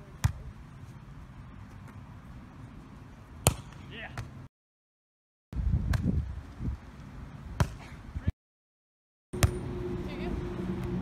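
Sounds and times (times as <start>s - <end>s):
volleyball being struck: 3.4s - 3.8s, 9.4s - 9.6s.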